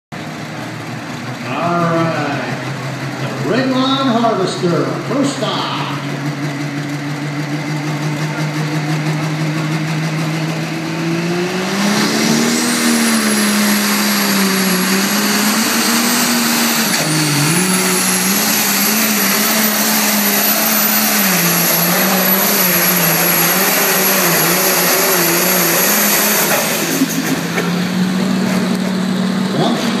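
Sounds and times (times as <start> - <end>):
tractor diesel engine pulling: 0.1 - 30.0
high turbo whine: 0.2 - 30.0.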